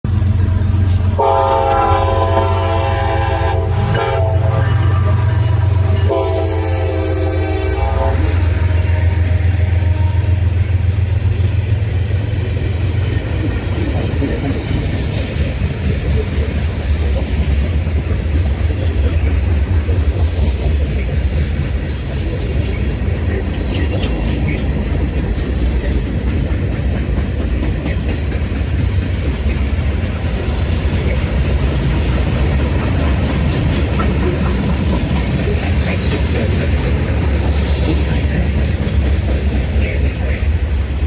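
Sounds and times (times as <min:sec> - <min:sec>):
freight cars rumbling on rails: 0:00.0 - 0:41.0
locomotive engine drone: 0:00.0 - 0:41.0
train horn blasts: 0:01.1 - 0:10.8.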